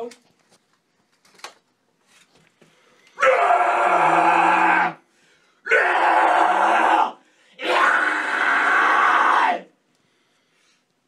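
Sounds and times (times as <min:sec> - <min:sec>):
harsh vocal screams: 0:03.2 - 0:05.0, 0:05.6 - 0:09.8.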